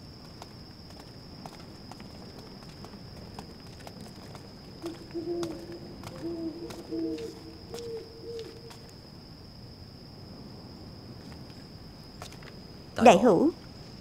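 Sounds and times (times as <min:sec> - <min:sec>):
owl hooting: 0:04.8 - 0:08.8.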